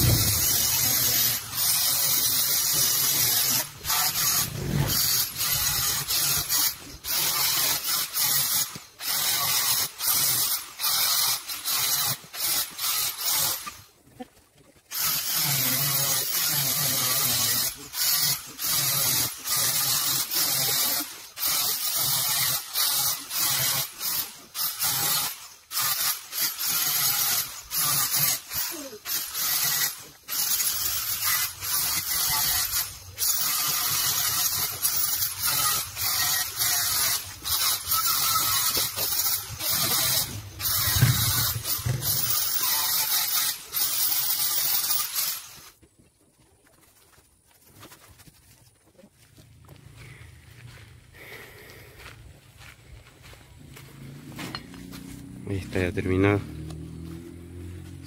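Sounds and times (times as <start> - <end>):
angle grinder cutting brick: 0.0 - 13.9, 14.9 - 45.8.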